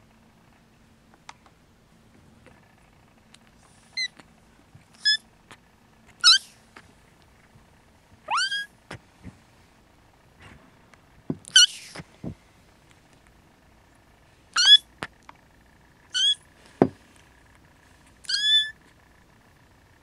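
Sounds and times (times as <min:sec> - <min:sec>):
kittens mewing: 0:06.2 - 0:06.6, 0:08.2 - 0:09.0, 0:11.4 - 0:12.0, 0:14.5 - 0:15.0, 0:16.1 - 0:16.5, 0:18.2 - 0:18.8.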